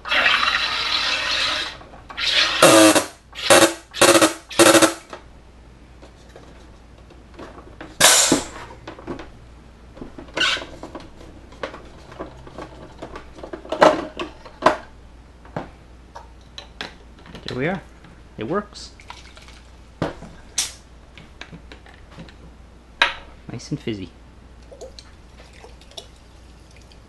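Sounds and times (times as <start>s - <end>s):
buzzing bursts of gas: 0.0s - 5.1s.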